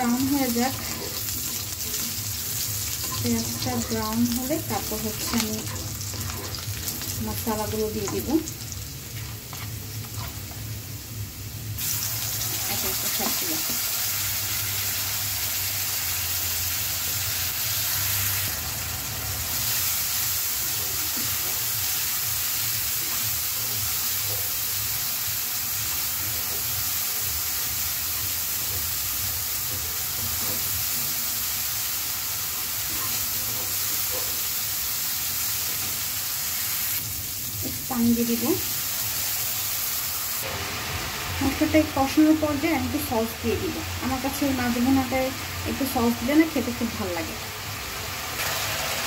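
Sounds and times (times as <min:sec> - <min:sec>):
paste and onions sizzling in oil: 0:00.0 - 0:49.0
wooden spatula stirring: 0:09.2 - 0:10.6.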